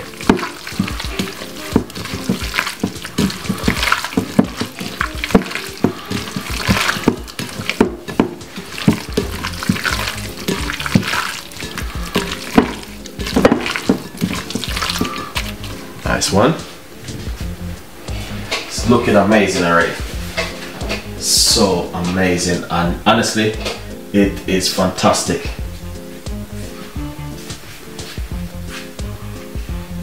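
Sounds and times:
wet squelching of raw meat: 0:00.0 - 0:16.1
background music: 0:00.0 - 0:30.0.

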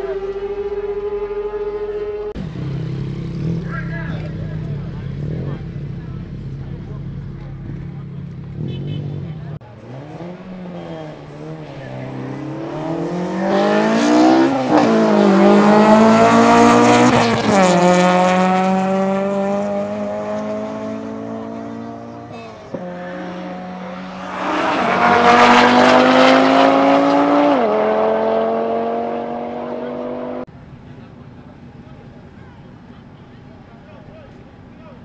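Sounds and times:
second loud engine: 0:00.0 - 0:35.0
car engine revving hard: 0:09.8 - 0:30.5.

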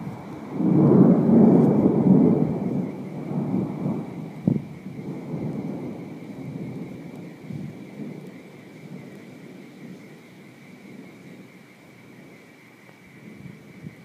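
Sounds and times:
sharp thunder clap: 0:00.0 - 0:10.1
thunder rumbling: 0:00.0 - 0:14.0.

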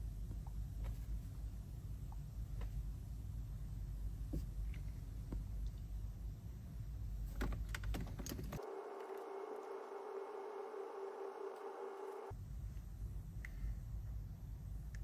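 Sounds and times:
steady single-pitched hum: 0:08.6 - 0:12.4.

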